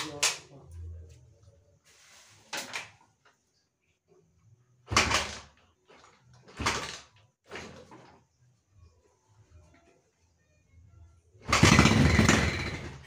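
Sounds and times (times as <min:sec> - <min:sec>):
motorcycle engine kick-start attempts: 0:04.9 - 0:08.1, 0:11.5 - 0:13.0.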